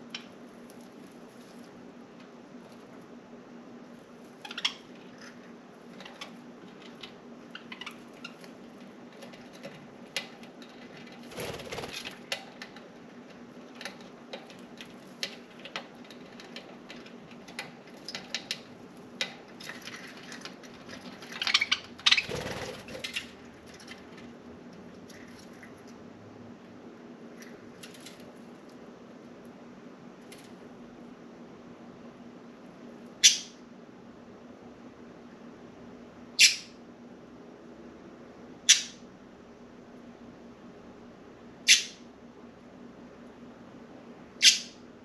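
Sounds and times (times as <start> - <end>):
steady low hum: 0.0 - 45.0
blinds rattling: 8.2 - 21.5.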